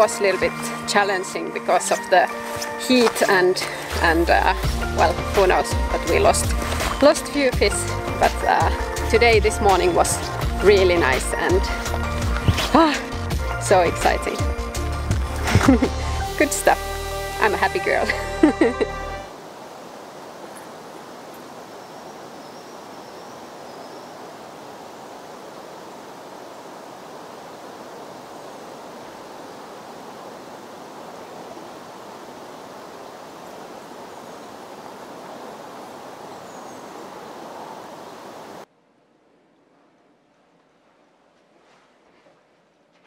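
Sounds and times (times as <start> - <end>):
river rapids rushing: 0.0 - 15.8.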